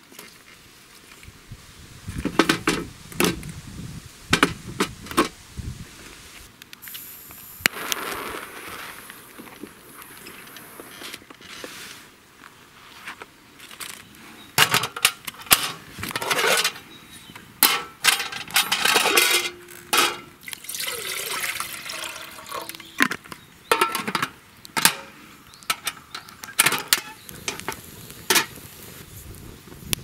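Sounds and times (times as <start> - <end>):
metal cookware clinking: 17.6 - 20.3, 23.7 - 25.1
water poured into metal tin: 20.4 - 22.9.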